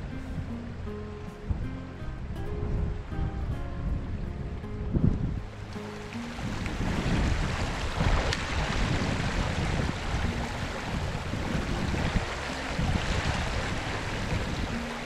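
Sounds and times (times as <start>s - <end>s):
wind buffeting microphone: 0.0s - 15.0s
fast river current rushing: 5.0s - 15.0s.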